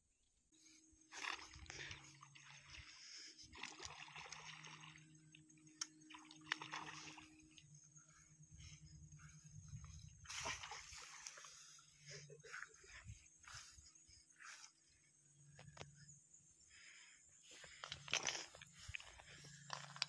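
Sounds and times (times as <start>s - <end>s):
fish splashing at water surface: 1.1s - 7.6s, 10.3s - 11.8s.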